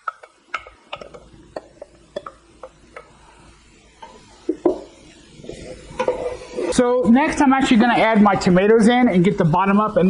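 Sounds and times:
wooden spoon knocking in pot: 0:00.0 - 0:03.1, 0:04.5 - 0:04.9
food sizzling: 0:00.0 - 0:10.0.

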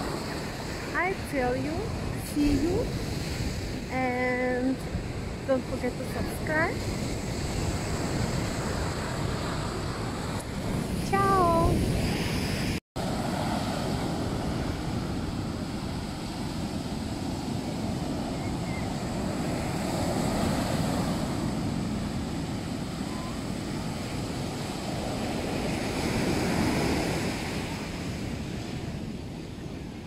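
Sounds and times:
surf breaking on beach: 0:06.1 - 0:29.9.

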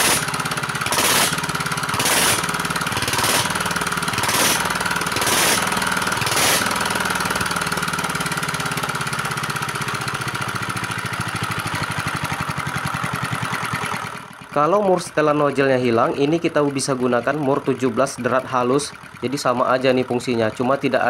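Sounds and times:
sharp bursts of noise: 0:00.0 - 0:07.4
diesel engine idling: 0:00.0 - 0:21.0.

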